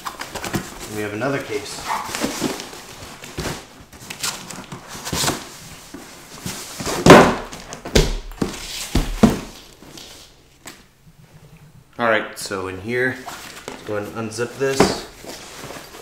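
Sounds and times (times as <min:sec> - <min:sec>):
bag rustling in cardboard box: 0:00.6 - 0:07.0, 0:14.6 - 0:16.0
bag thumping on wooden floor: 0:07.0 - 0:09.6.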